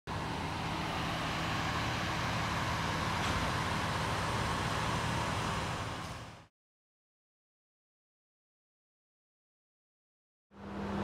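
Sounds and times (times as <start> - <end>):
vehicle engine idling: 0.1 - 6.5.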